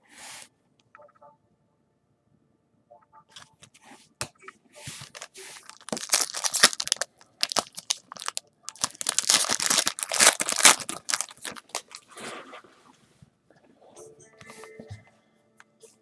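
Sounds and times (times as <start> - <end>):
foil wrapper tearing and crinkling: 5.0 - 12.0.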